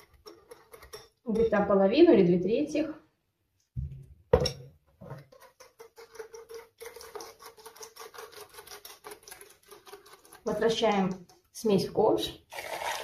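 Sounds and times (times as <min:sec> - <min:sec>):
whisk beating against bowl: 0:05.2 - 0:11.6.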